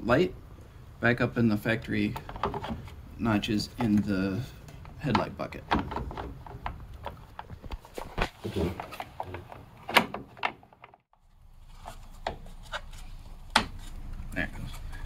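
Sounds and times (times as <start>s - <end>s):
clicks and knocks of handling: 2.1s - 3.0s, 3.7s - 11.1s.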